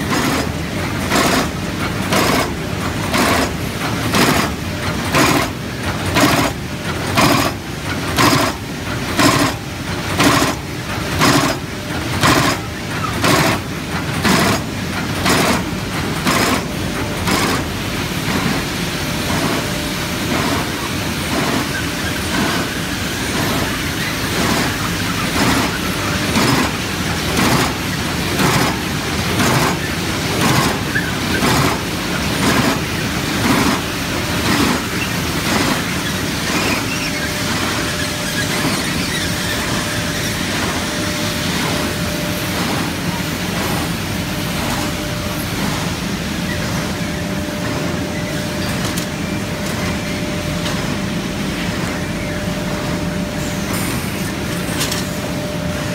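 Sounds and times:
carton folding machine running: 0.0s - 55.9s
sharp regular machine knocks: 2.1s - 2.5s.

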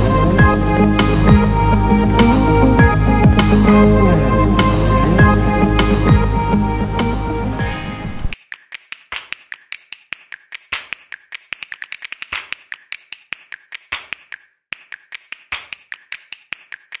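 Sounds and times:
sharp clicks and taps: 8.4s - 17.0s.

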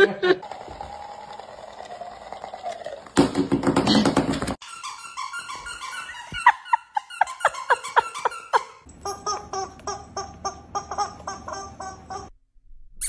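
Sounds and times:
squeaky dog toy squeaking: 4.6s - 12.3s.

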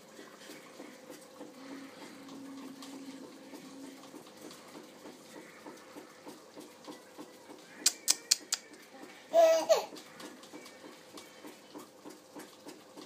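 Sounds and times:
baby jumper creaking and ticking: 5.2s - 13.0s.

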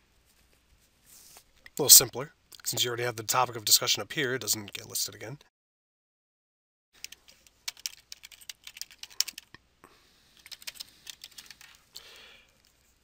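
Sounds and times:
typing on keyboard: 7.0s - 9.6s, 10.4s - 11.8s.

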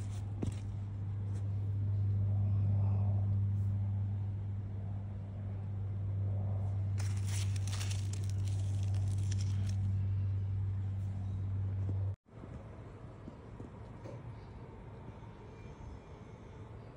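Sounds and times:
low mechanical hum: 0.0s - 16.9s
crackly rustling: 7.0s - 9.9s.

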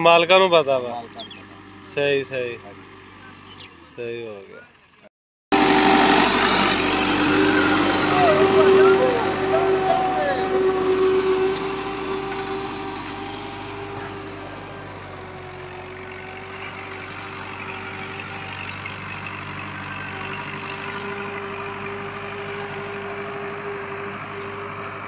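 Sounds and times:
tractor diesel engine: 0.0s - 25.0s
high whine: 5.5s - 15.4s.

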